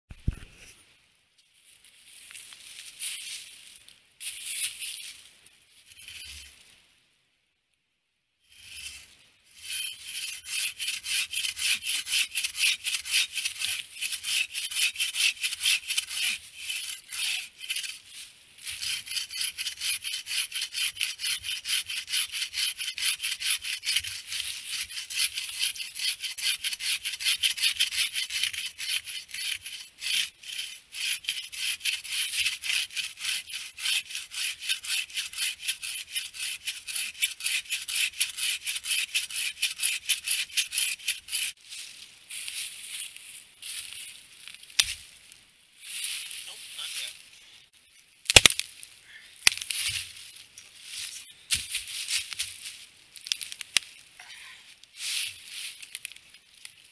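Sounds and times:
bow saw cutting log: 8.5s - 41.6s.

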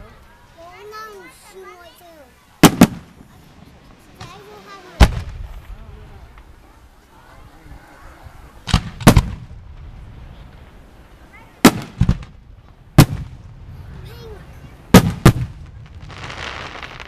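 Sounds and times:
firework booms: 2.6s - 6.7s, 8.2s - 17.0s.

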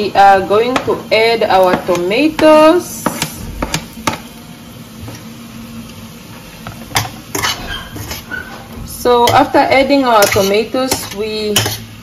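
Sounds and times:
metal spoon clinking on pan: 9.2s - 11.8s.

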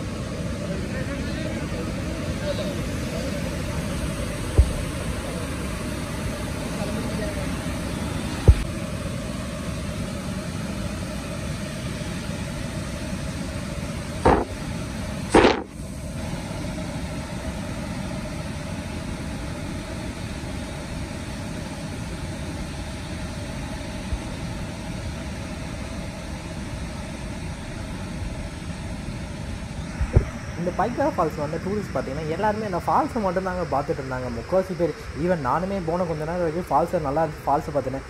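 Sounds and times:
loud bumps: 14.2s - 14.6s.

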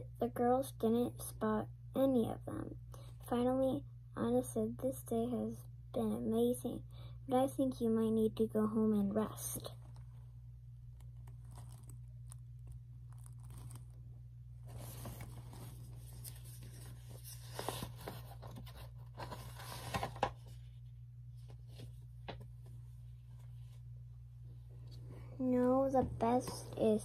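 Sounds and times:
book pages rustling: 10.9s - 20.8s.

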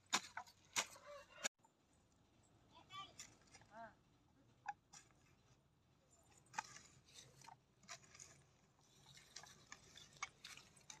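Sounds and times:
hand hoe scraping dry soil: 0.0s - 1.5s, 6.2s - 11.0s.

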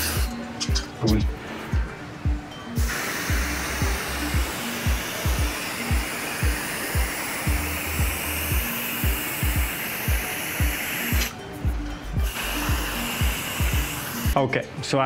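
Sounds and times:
aerosol spray can hissing: 0.0s - 0.3s, 2.8s - 11.4s, 12.2s - 14.4s
background music with beat: 0.0s - 15.0s.

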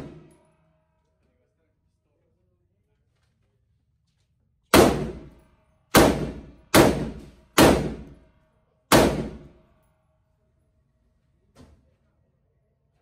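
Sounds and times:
rifle shots ringing indoors: 0.0s - 1.3s, 4.6s - 10.6s.

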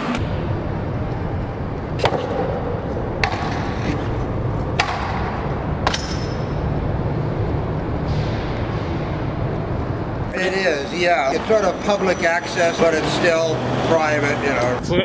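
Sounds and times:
metallic ring: 5.9s - 6.7s.

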